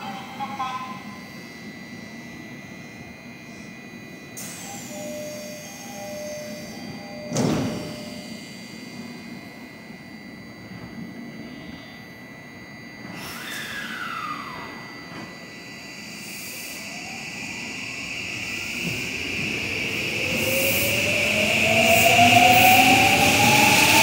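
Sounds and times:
electric train motor whine rising: 0:01.1 - 0:24.0
brief falling tone: 0:03.6 - 0:09.4, 0:12.9 - 0:24.0.

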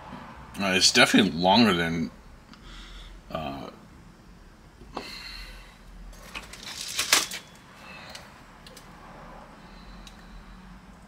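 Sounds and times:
pistol parts clicking and clattering: 0:06.2 - 0:07.6.

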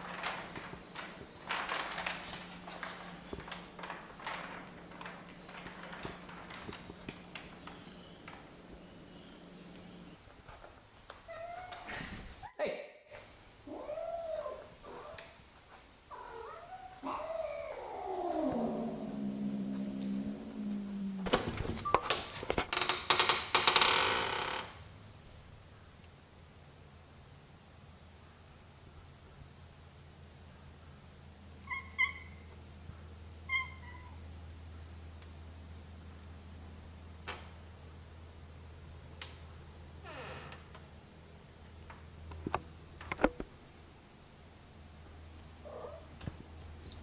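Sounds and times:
cat yowling: 0:13.7 - 0:15.2, 0:16.2 - 0:21.2, 0:33.5 - 0:34.2
cat growling: 0:16.1 - 0:21.3
cat meowing: 0:33.5 - 0:34.2.

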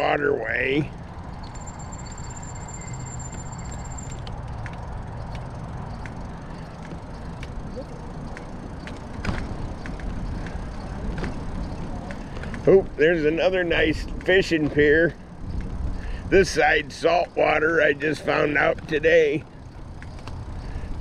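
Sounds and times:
bicycle tyre and wind rush: 0:00.8 - 0:21.0
bicycle bump: 0:03.3 - 0:12.8
light clicks and rattles: 0:18.6 - 0:21.0.

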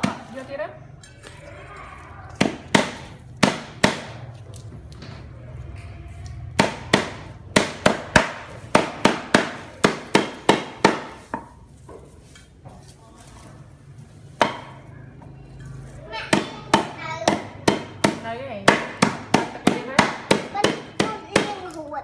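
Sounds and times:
cleaver chopping on wooden block: 0:02.4 - 0:04.2, 0:06.6 - 0:11.4.

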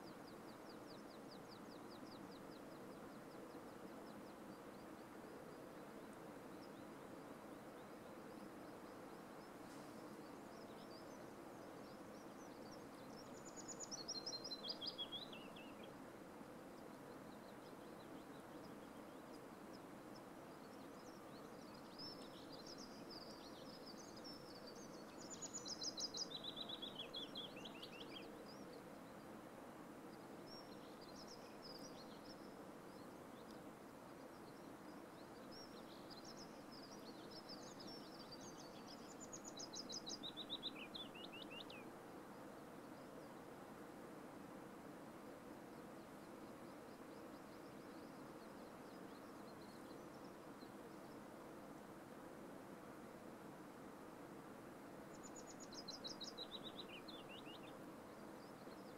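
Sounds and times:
songbird singing: 0:00.0 - 0:43.9, 0:45.5 - 0:51.9, 0:54.9 - 0:58.9
faint outdoor hush: 0:00.0 - 0:58.9.

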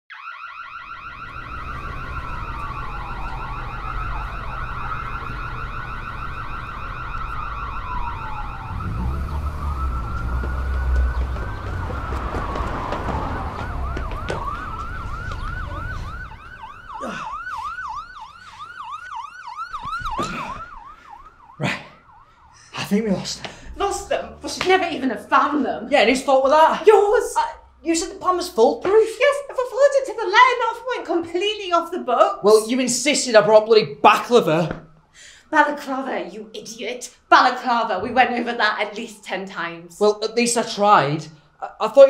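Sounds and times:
siren fast yelp: 0:00.1 - 0:28.4
police sirens wailing: 0:00.1 - 0:42.0.

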